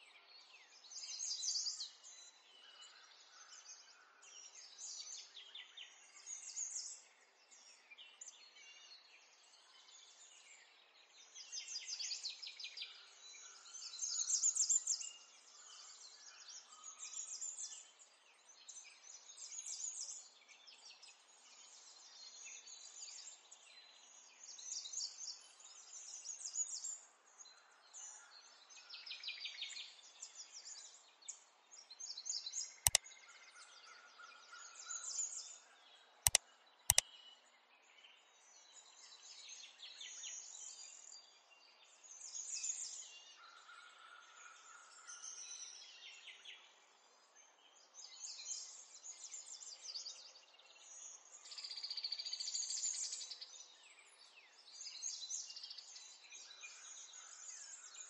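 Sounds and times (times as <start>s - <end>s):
sharp clicks: 36.3s - 37.0s.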